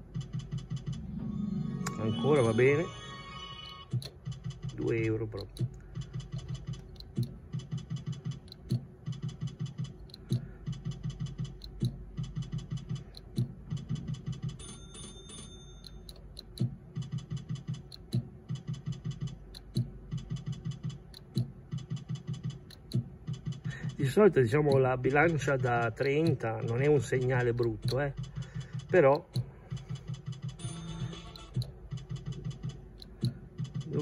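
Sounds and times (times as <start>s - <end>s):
slot machine reel ticks: 0.0s - 1.0s, 3.6s - 34.0s
sharp click: 3.9s - 10.4s, 11.4s - 13.5s, 17.3s - 23.0s, 26.0s - 28.1s.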